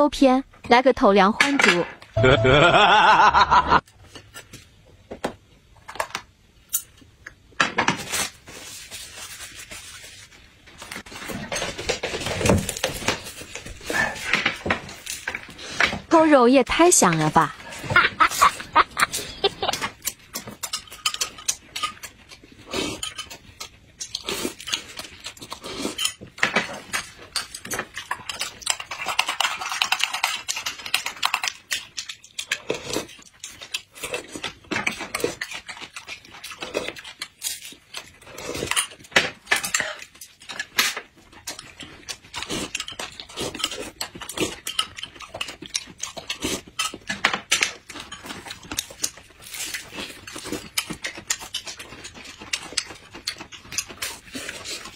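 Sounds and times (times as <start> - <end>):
people chewing and lip-smacking: 17.6 - 54.9.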